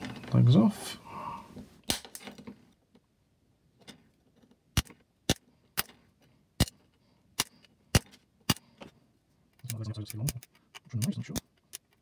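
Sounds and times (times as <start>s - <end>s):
side cutters snipping wire leads: 9.6s - 12.0s.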